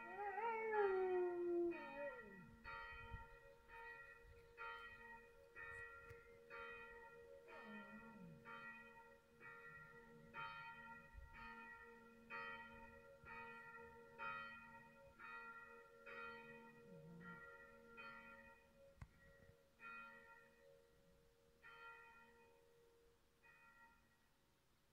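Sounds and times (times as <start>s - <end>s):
dog howling: 0.0s - 2.5s
faint church bells ringing: 0.0s - 24.4s.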